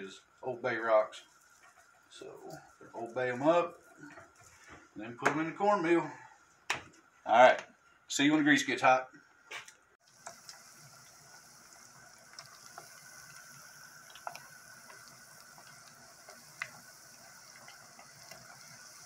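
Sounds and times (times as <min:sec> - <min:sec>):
fish deep-frying in oil: 0:10.0 - 0:19.0.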